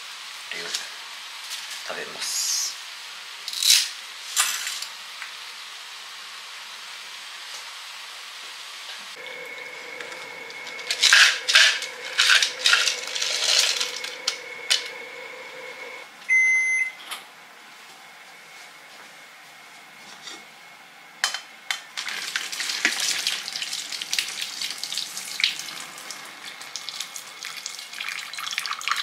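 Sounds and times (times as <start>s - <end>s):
steady hiss: 0.0s - 16.0s
faint whine: 9.2s - 21.2s
short electronic beep: 16.3s - 17.0s
crackling and splashing in pan: 21.9s - 29.0s.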